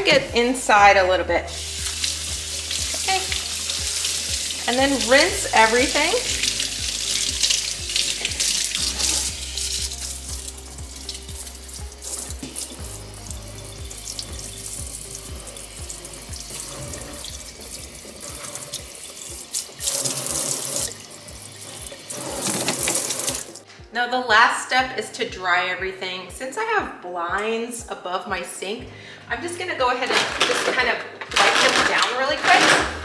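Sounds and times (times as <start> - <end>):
faucet water running into steel sink: 1.5 - 23.6.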